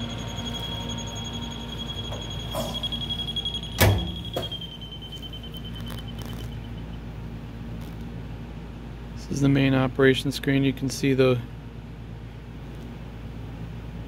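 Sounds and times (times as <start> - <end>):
warning buzzer high tone: 0.0 - 6.9
loud thump: 3.8 - 4.6.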